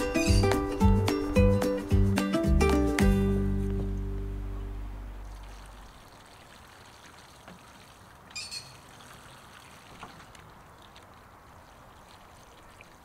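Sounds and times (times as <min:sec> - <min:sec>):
water pouring: 0:05.2 - 0:13.0.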